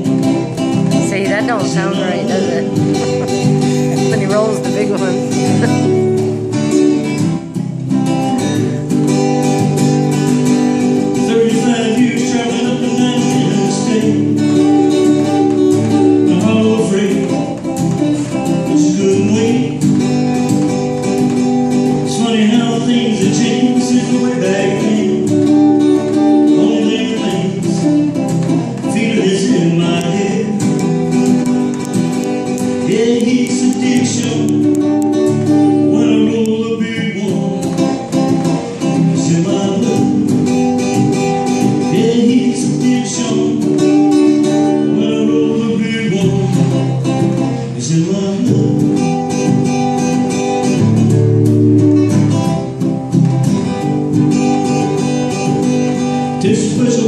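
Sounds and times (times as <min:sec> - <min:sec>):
man singing: 0:00.0 - 0:06.2, 0:11.0 - 0:20.3, 0:21.8 - 0:31.1, 0:32.5 - 0:49.5, 0:56.2 - 0:57.0
acoustic guitar strummed: 0:00.0 - 0:57.0.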